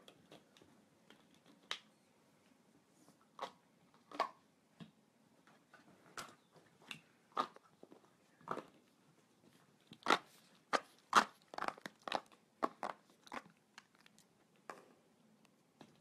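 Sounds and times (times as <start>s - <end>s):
dog chewing plastic balls: 0.0s - 1.8s, 6.2s - 8.9s, 9.9s - 15.1s.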